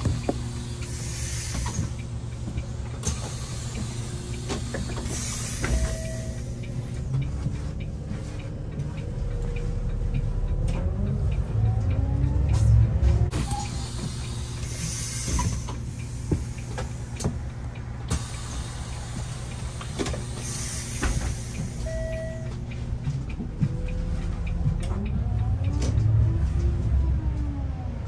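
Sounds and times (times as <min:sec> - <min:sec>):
bus drivetrain whine: 0:00.0 - 0:28.0
brief beep: 0:05.7 - 0:06.4, 0:21.9 - 0:22.5.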